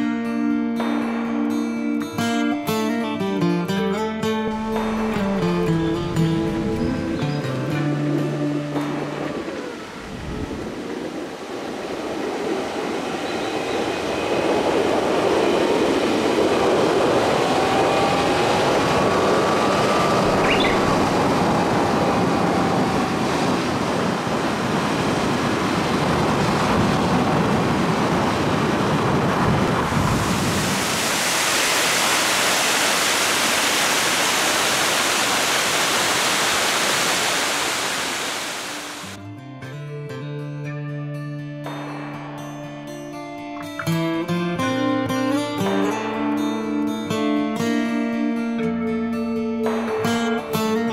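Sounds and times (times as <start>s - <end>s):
car engine and tyre rumble: 4.5s - 32.6s
falling water hissing: 29.8s - 39.2s.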